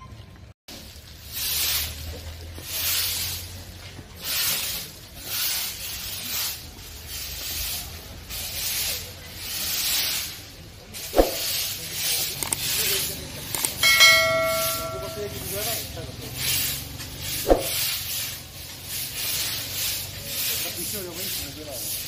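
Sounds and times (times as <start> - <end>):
broom sweeping dirt ground: 0.7 - 22.0.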